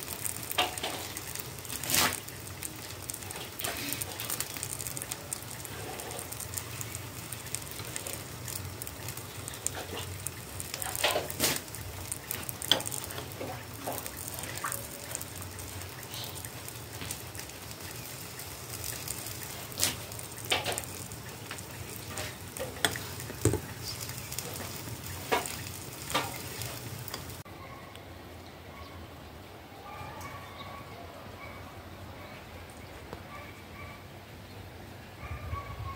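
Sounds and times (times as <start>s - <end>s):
pot boiling with bubbling hiss: 0.0s - 27.5s.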